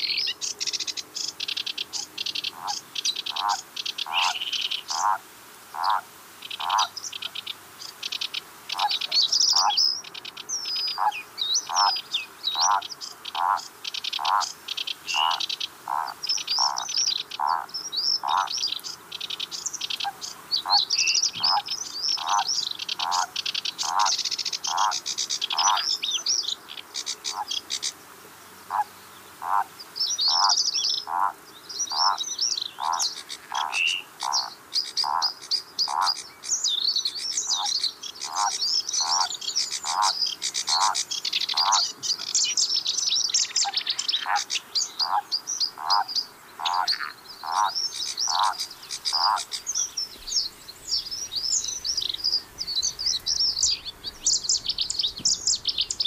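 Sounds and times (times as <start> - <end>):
songbirds singing: 0.0 - 56.0
frog croaking: 1.9 - 6.0, 6.6 - 6.9, 8.7 - 9.8, 11.0 - 12.0, 12.6 - 14.5, 15.1 - 18.5, 19.9 - 25.9, 27.2 - 27.6, 28.7 - 29.7, 30.3 - 32.2, 32.8 - 36.2, 37.5 - 42.4, 43.5 - 45.2, 45.8 - 49.6.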